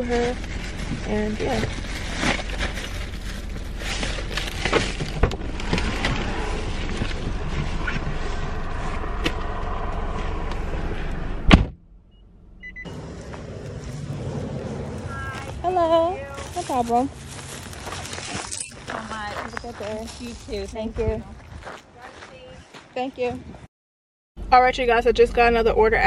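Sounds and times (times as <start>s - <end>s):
low steady hum: 0.0s - 20.6s
sharp thump: 11.3s - 11.8s
bag rustling and clicking: 13.2s - 20.8s.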